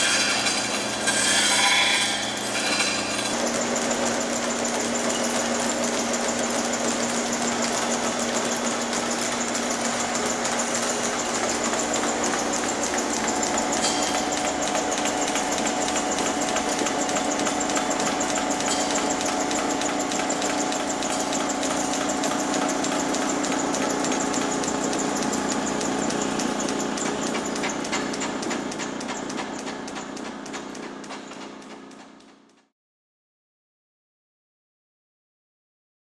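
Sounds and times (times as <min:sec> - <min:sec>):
lathe motor hum: 0:00.0 - 0:32.6
belt ticking: 0:14.4 - 0:32.6.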